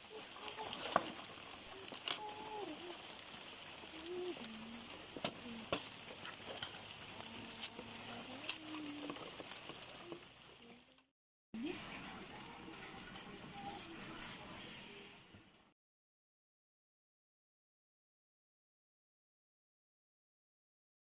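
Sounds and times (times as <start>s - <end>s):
steady high hiss: 0.0s - 11.0s
plant stem cracking and snapping: 0.8s - 2.4s.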